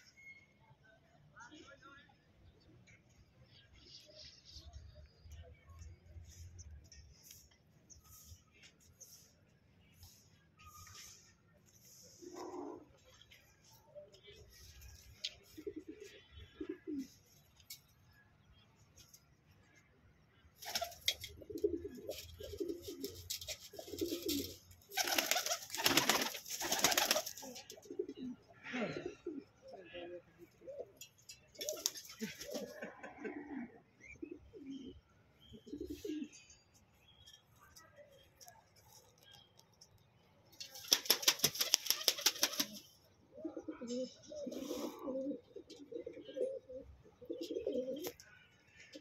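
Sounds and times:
faint chirps: 2.6 - 12.4
pigeons cooing: 15.4 - 17.2, 20.7 - 36.4, 41.5 - 48.2
wings flapping: 20.6 - 21.3, 22.8 - 27.6, 31.6 - 32.6, 40.7 - 42.8.

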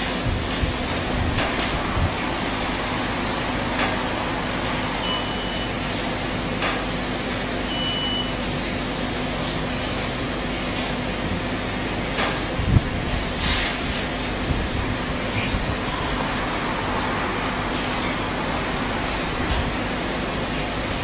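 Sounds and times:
low electrical hum: 0.0 - 21.0
microwave oven running: 0.0 - 21.0
short high-pitched beeps: 5.0 - 5.8, 7.6 - 8.4.

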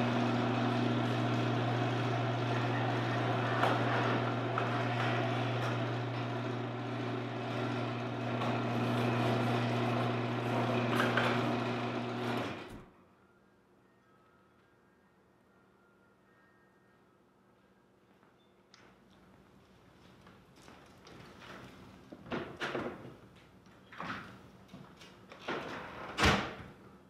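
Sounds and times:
electrical machine hum: 0.0 - 12.9.

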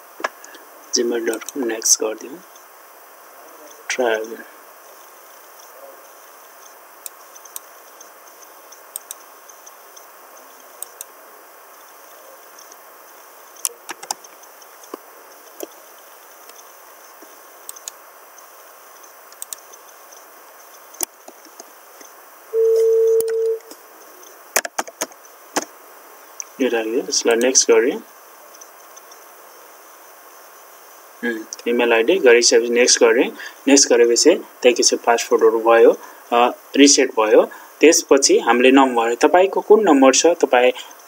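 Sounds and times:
steady hiss: 0.0 - 41.0
steady beep: 22.5 - 23.7.

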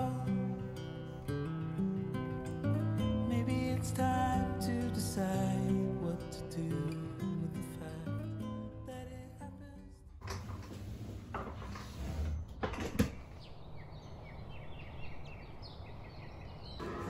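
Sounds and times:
knocks and clatter: 12.5 - 13.3.

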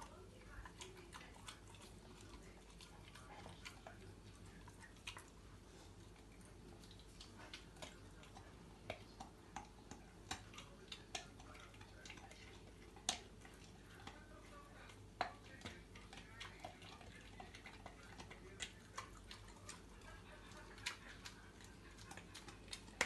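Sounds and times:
puppy chewing food: 0.0 - 23.0.

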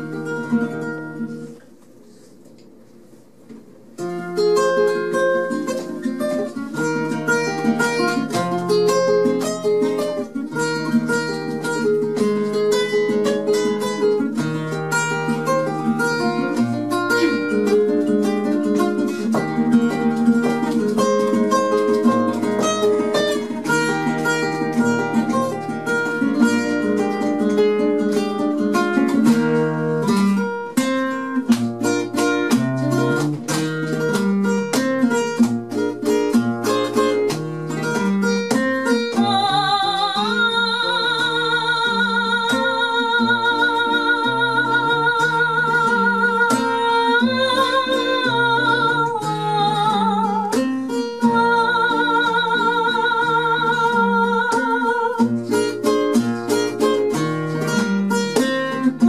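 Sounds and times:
flamenco guitar: 0.0 - 59.0.

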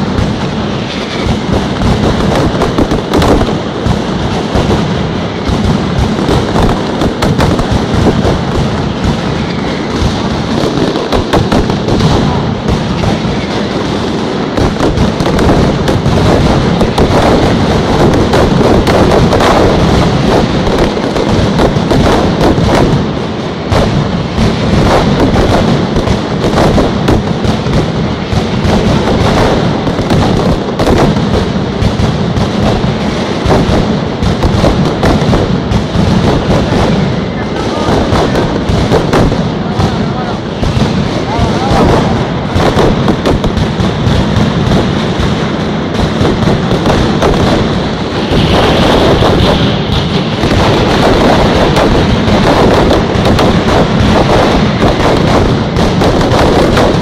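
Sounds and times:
barrage of firecracker bangs: 0.0 - 57.0.

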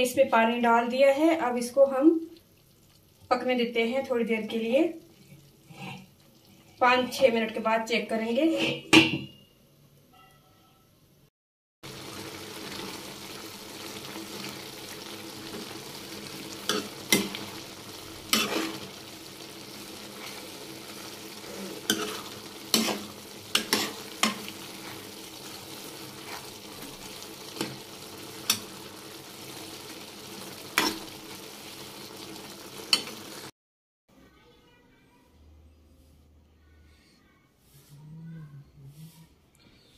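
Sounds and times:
apple sizzling and simmering: 0.4 - 8.4, 11.8 - 33.5.

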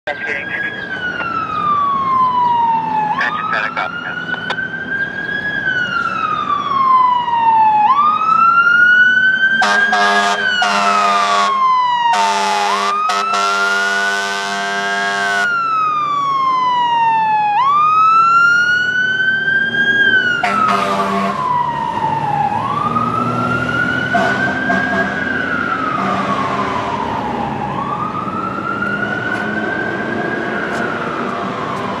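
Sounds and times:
fire engine siren wailing: 0.1 - 32.0
air horn blasts: 9.6 - 15.5, 20.4 - 21.4, 24.1 - 25.2.

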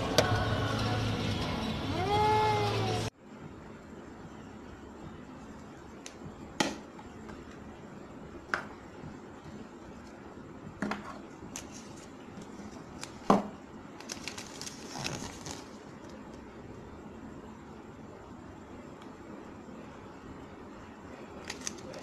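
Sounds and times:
paper crinkling: 14.0 - 16.4, 21.4 - 22.0.

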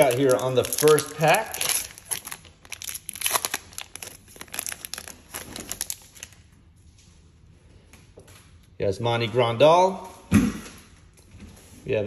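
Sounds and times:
card pack wrapper crinkling and tearing: 0.0 - 6.4.

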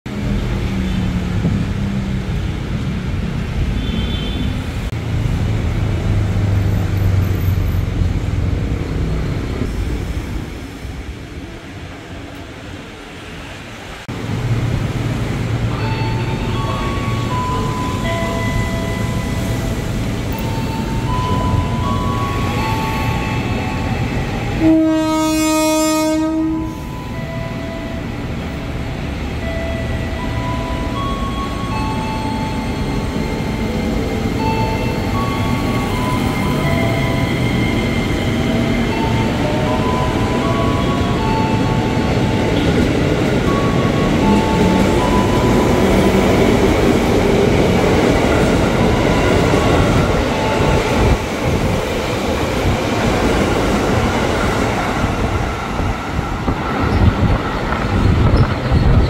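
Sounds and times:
train wheels rumbling: 4.5 - 59.0
train horn blast: 24.5 - 26.9.

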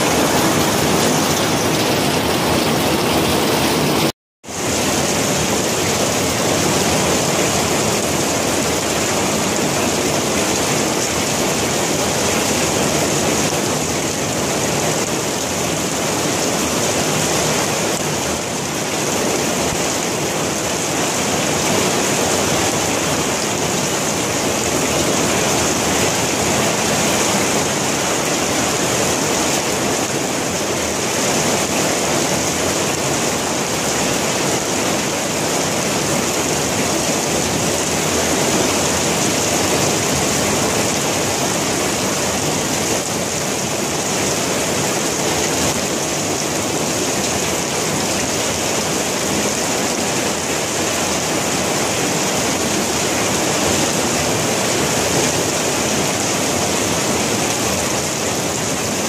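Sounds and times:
heavy rain pouring: 0.0 - 59.0.

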